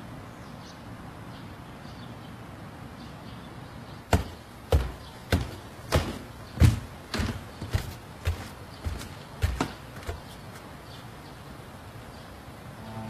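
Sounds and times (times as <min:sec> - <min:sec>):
sharp knocks: 0:04.1 - 0:10.4.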